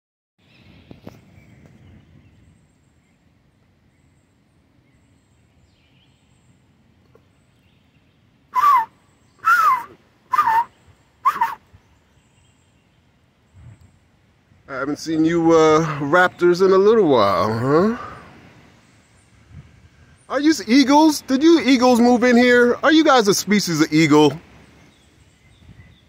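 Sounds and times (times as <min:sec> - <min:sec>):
hawk calling: 0:08.5 - 0:11.7.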